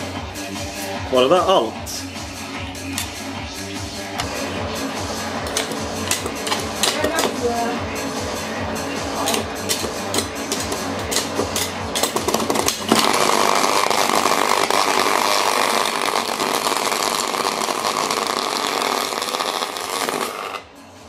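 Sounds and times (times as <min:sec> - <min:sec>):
motor arcing crackle: 0:11.9 - 0:20.7.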